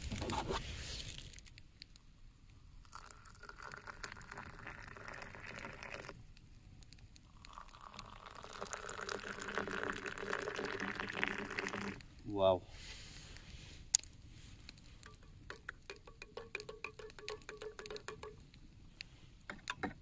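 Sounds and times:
hot water pouring into metal cup: 2.8s - 6.2s, 7.2s - 12.1s, 14.8s - 18.4s.

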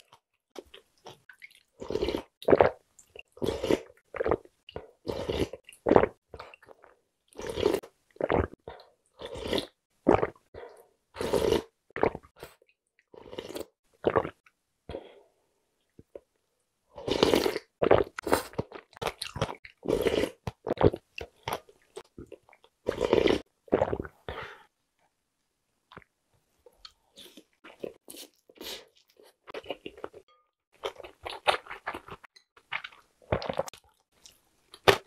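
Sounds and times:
slurping noodles: 3.4s - 4.4s, 5.0s - 6.2s, 7.4s - 8.6s, 9.2s - 10.4s, 11.2s - 12.6s, 13.2s - 14.4s, 17.0s - 19.0s, 19.8s - 21.0s, 22.9s - 24.4s.

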